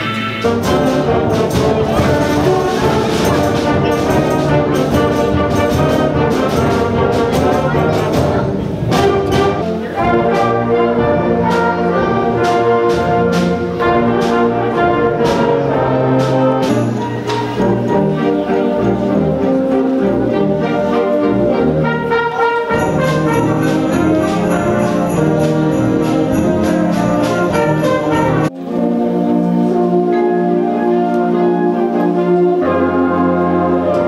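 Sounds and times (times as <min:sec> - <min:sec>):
concert band playing: 0:00.0 - 0:34.0
trombones: 0:00.0 - 0:34.0
sharp percussion strikes: 0:22.7 - 0:28.5.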